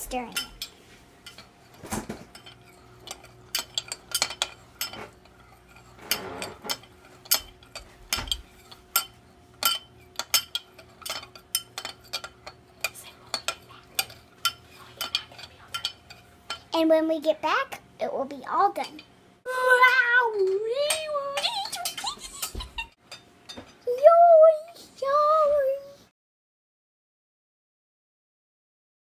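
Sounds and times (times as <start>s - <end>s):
metal utensil clinking on glass: 0.2s - 16.7s, 20.8s - 23.8s.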